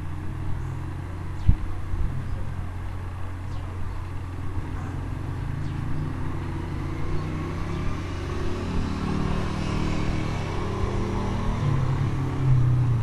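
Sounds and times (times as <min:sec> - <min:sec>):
motor humming low rumble: 0:00.0 - 0:08.1.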